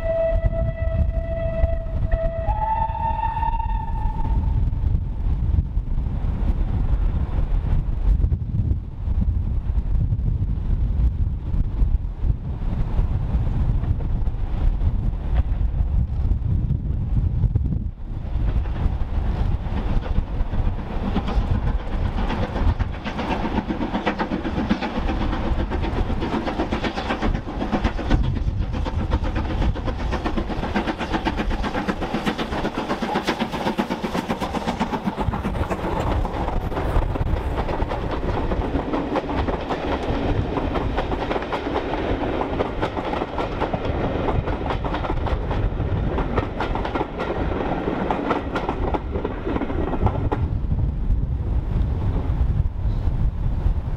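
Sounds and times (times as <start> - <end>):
steam locomotive exhaust beats: 0.0 - 53.9
train wheels clicking over rail joints: 18.2 - 50.6.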